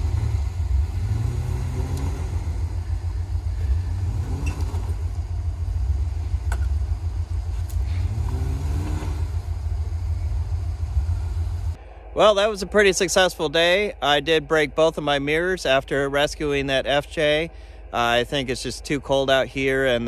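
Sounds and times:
vehicle engine rumbling and revving: 0.0s - 11.8s.

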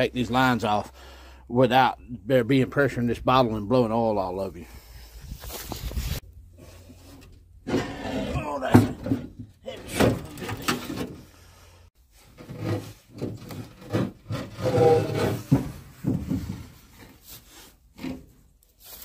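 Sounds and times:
metal scraping and knocking on metal: 6.7s - 11.3s, 12.2s - 17.3s.

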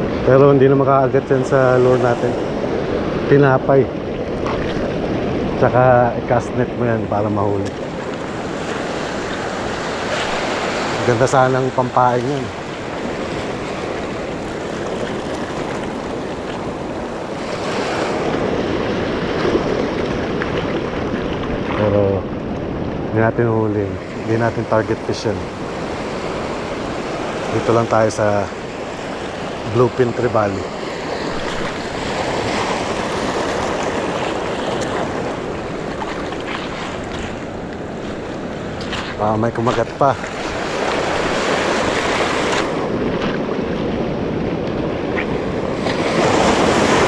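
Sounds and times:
wind on microphone: 0.0s - 47.0s
small waves washing over rocks: 7.5s - 23.0s, 25.1s - 47.0s.

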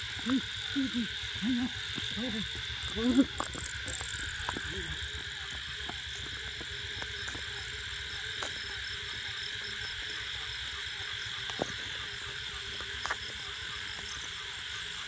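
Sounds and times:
crickets and insects chirring: 0.0s - 15.0s
footsteps on gravel: 1.9s - 9.2s.

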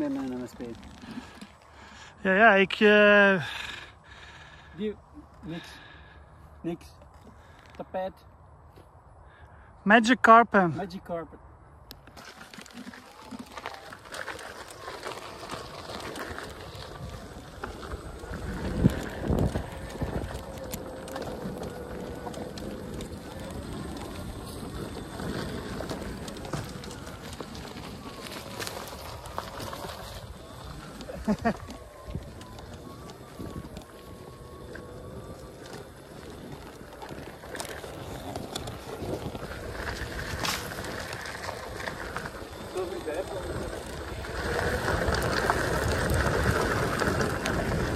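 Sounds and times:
electric unicycles rolling rumble: 0.0s - 9.7s, 11.4s - 47.9s
wind on microphone: 16.5s - 47.9s.

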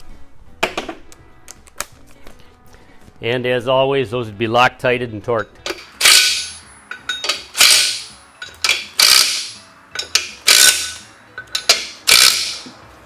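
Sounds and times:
impact driver hammering: 5.7s - 6.6s, 7.3s - 11.0s, 11.6s - 12.7s.

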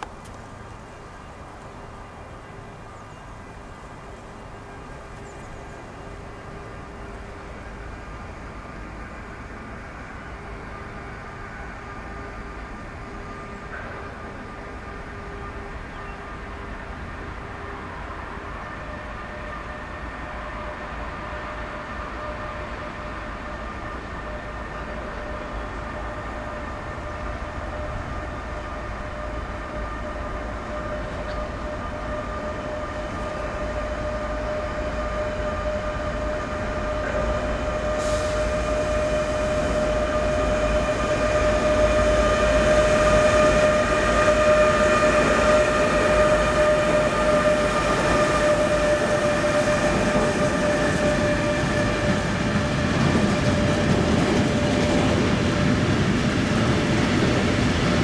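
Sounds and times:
electric locomotive high tones: 0.6s - 58.0s
freight wagons rumbling by: 24.2s - 58.0s.

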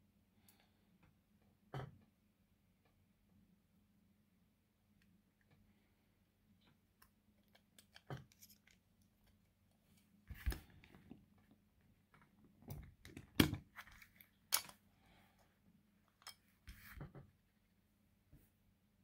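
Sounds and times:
metallic clicks and scrapes: 7.0s - 8.8s.

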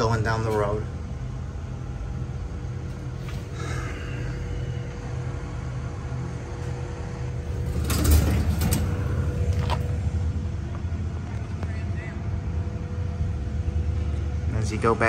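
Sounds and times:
low rumble: 0.0s - 14.8s
faint steady whine: 0.0s - 15.0s
knocks and rattles: 6.7s - 10.0s.

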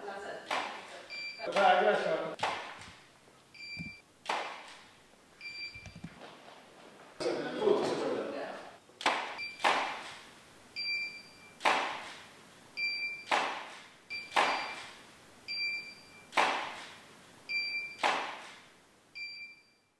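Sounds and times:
flash unit beep: 1.1s - 1.5s, 3.6s - 4.0s, 5.4s - 6.0s, 9.4s - 9.7s, 10.8s - 11.6s, 12.8s - 13.4s, 14.1s - 14.9s, 15.5s - 16.4s, 17.5s - 18.1s, 19.2s - 19.9s
camera flash popping: 14.2s - 14.9s.

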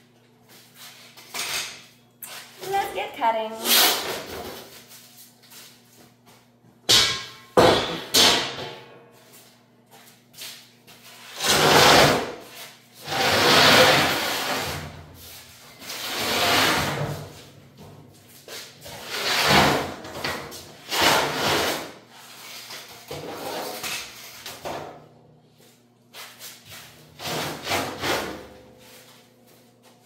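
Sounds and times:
sharp metal clanks: 6.9s - 8.6s
metal plate scraping on metal: 13.0s - 14.8s.

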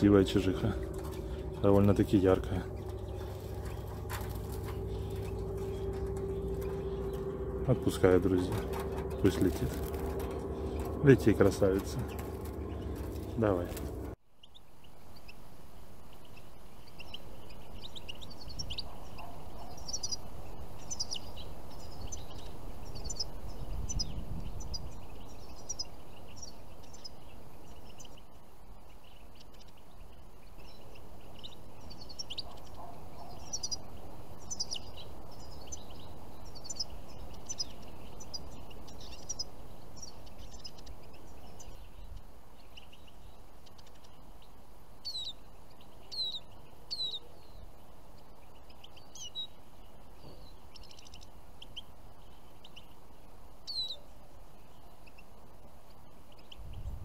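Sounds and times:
low background rumble: 0.0s - 14.2s
finches chirping: 0.0s - 57.0s.

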